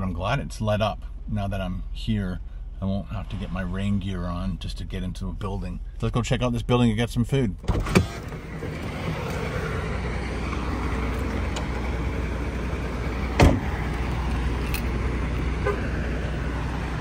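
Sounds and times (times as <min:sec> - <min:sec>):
vehicle engines and traffic rumble: 0:00.0 - 0:17.0
loud thump: 0:13.3 - 0:13.8.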